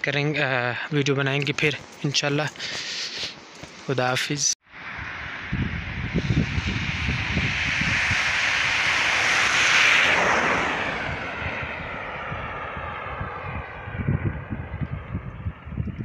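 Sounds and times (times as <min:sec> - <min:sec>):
vehicle passing by: 0:04.7 - 0:15.7
wind buffeting microphone: 0:04.8 - 0:16.0.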